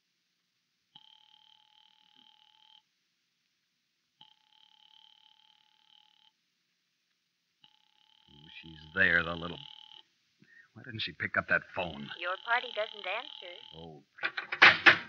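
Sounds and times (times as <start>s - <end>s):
telephone ringing tone: 1.0s - 2.9s, 4.2s - 6.4s, 7.6s - 10.1s, 11.8s - 13.9s.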